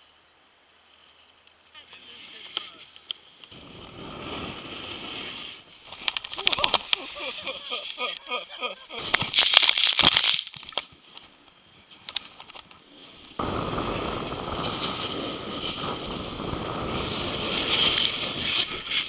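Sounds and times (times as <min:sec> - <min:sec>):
snowboard sliding over snow: 0:00.8 - 0:09.4, 0:10.8 - 0:19.0
wind on camera microphone: 0:13.4 - 0:19.0.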